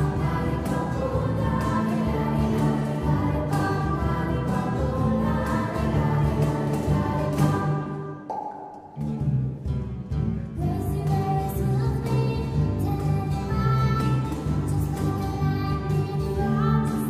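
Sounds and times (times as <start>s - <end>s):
choir singing: 0.0s - 8.2s
strummed acoustic guitars: 0.0s - 8.2s, 8.9s - 17.0s
keyboard: 0.0s - 17.0s.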